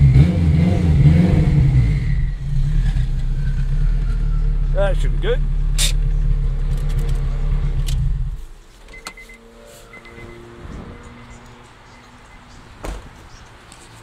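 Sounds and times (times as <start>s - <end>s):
car engine idling: 1.0s - 14.0s
thump: 12.8s - 13.5s.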